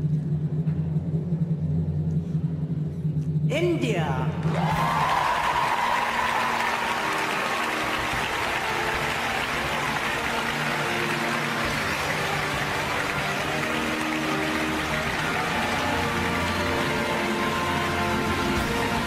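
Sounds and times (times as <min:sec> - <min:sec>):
music playing: 0:03.5 - 0:19.0
audience applauding and cheering: 0:04.4 - 0:19.0.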